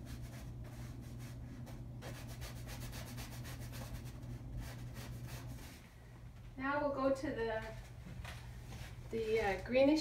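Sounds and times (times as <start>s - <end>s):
paintbrush scratching on canvas: 0.0s - 5.8s
steady low hum: 0.0s - 10.0s.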